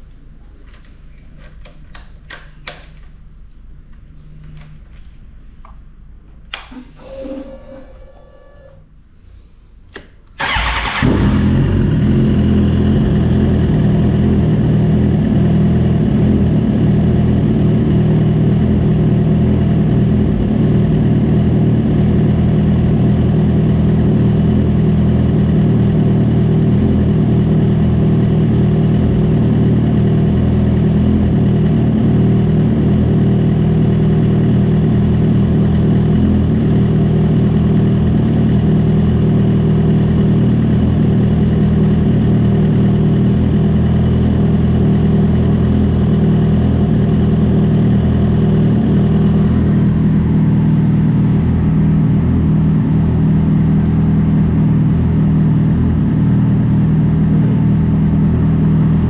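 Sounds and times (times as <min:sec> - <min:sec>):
short whir: 0:06.7 - 0:08.9
motorcycle engine idling: 0:10.4 - 0:59.0.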